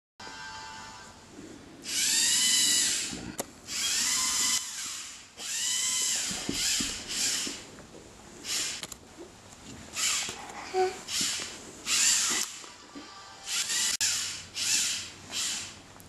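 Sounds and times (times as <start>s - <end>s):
robot motors whining: 1.8s - 7.6s, 10.0s - 12.6s, 13.5s - 15.7s.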